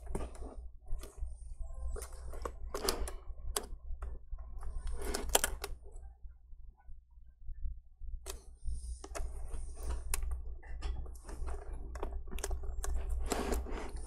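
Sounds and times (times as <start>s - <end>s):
low steady hum: 0.0s - 14.0s
plastic crackling and clicking: 1.9s - 5.8s, 9.0s - 14.0s.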